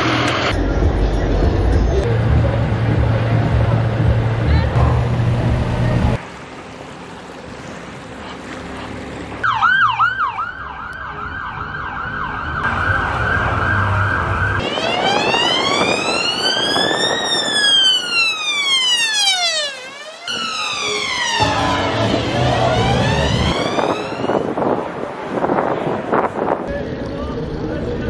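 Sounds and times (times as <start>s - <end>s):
police siren yelp and wail: 9.4s - 24.8s.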